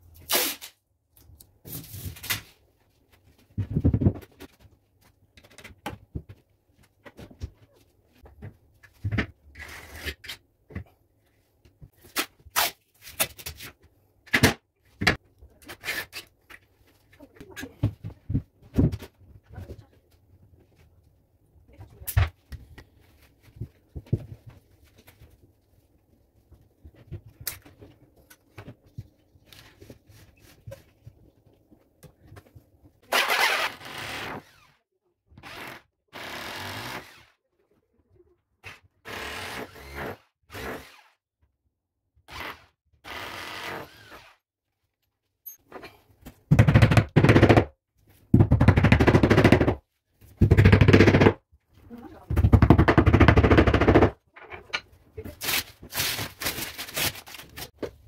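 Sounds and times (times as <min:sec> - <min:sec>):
power drill boring into tile: 0:33.1 - 0:34.8, 0:35.4 - 0:37.3, 0:42.3 - 0:44.4.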